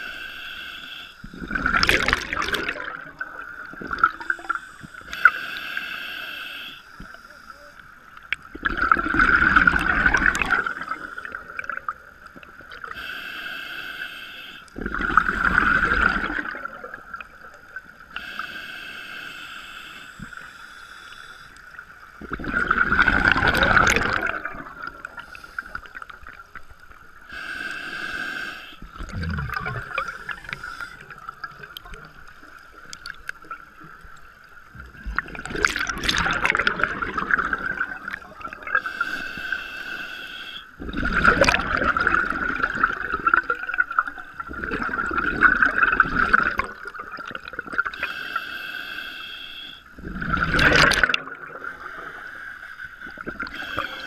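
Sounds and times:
regulator inhalation hiss: 0.0 - 1.5, 4.1 - 7.8, 12.9 - 14.7, 18.1 - 21.8, 25.0 - 26.0, 27.3 - 28.9, 29.8 - 31.2, 38.8 - 40.8, 47.9 - 49.9, 51.8 - 54.0
exhaled bubbles rushing: 1.4 - 4.3, 8.5 - 12.0, 14.8 - 17.6, 22.2 - 25.3, 28.8 - 33.4, 34.8 - 38.8, 40.8 - 48.0, 50.0 - 51.7.

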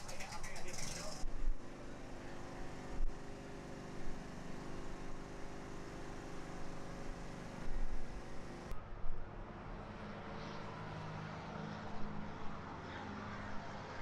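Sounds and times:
engine idling: 0.0 - 1.2.

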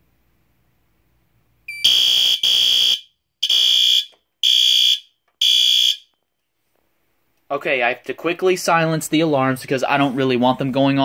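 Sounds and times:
fire alarm horn blasts: 1.7 - 6.2.

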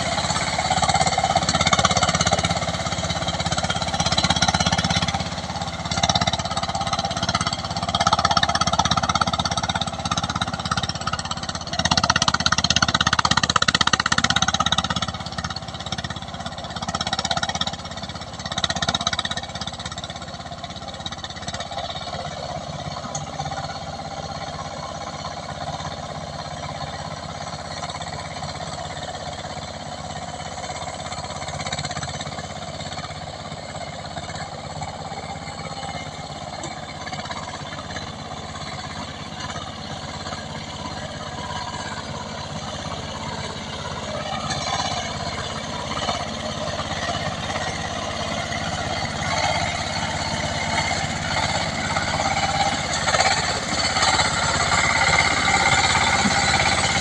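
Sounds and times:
diesel engine running: 0.0 - 57.0
paddle wheels churning water: 44.8 - 57.0.

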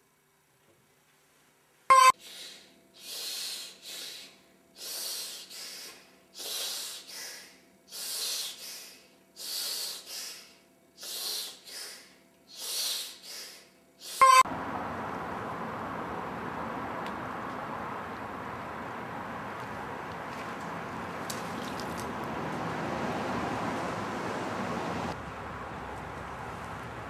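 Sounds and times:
person breathing heavily: 2.2 - 14.2.

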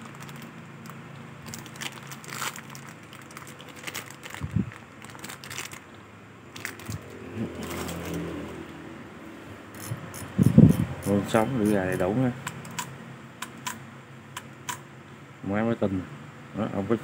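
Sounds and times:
crinkly rustles: 0.0 - 5.9, 6.5 - 8.2
low steady hum: 0.0 - 17.0.

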